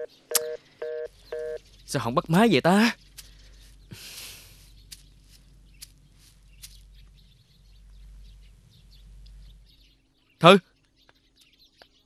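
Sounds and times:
bird chirps: 0.0s - 12.0s
low steady hum: 2.9s - 10.3s.

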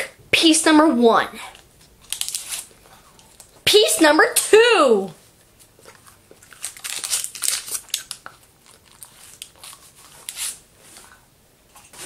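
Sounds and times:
paper wrapper crinkling: 1.6s - 3.6s, 5.6s - 10.6s.

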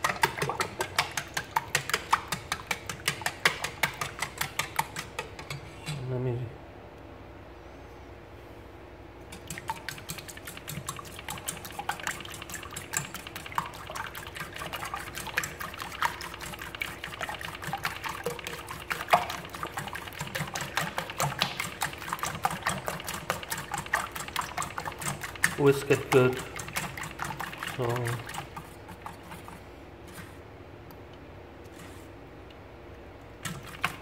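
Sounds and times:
wet sloshing: 0.0s - 5.7s, 9.3s - 30.4s
whisk clicking against metal bowl: 0.0s - 6.1s, 9.3s - 29.5s.

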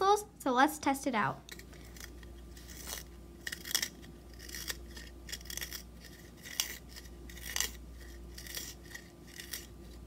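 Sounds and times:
pencil sharpener scraping: 1.8s - 10.0s.

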